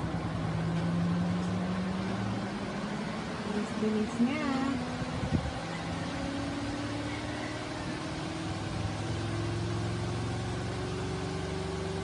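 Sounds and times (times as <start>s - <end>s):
spin dryer motor hum and whine: 0.0s - 12.0s.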